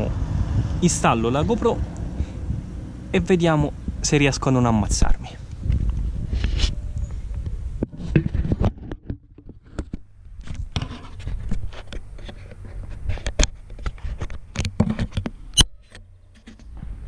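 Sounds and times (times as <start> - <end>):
camera clicks and scrapes: 5.8 - 6.8, 7.8 - 16.8.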